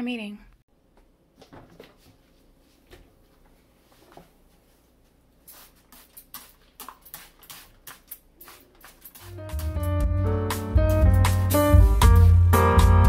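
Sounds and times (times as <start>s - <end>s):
spray bottle squirting: 5.5s - 9.8s
background music: 9.3s - 13.0s.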